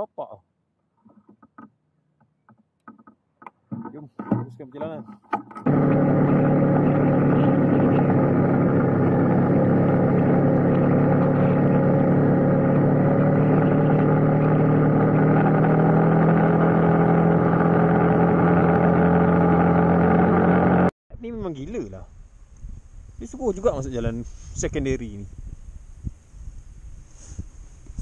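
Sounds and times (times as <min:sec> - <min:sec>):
motorcycle engine cruising: 0:05.6 - 0:20.9.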